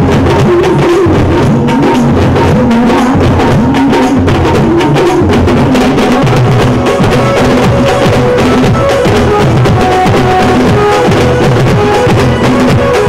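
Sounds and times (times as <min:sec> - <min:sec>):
frame and barrel drums beating: 0:00.0 - 0:13.0
pitch-bending melody: 0:05.7 - 0:13.0.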